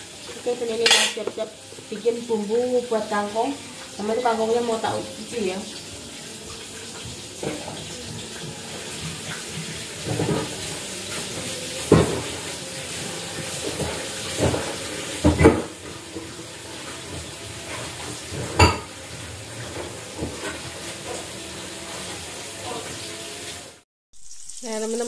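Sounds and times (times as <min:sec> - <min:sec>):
tap water running: 0:00.0 - 0:25.0.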